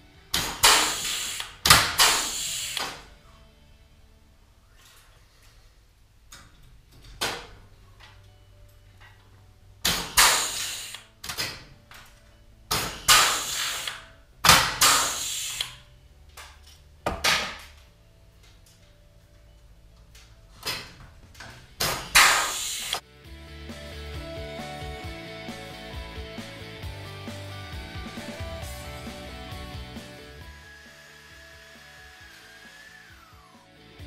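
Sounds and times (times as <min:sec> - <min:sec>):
pneumatic rivet gun bursts: 0:00.3 - 0:03.0, 0:09.8 - 0:11.5, 0:12.7 - 0:15.8, 0:21.8 - 0:23.0.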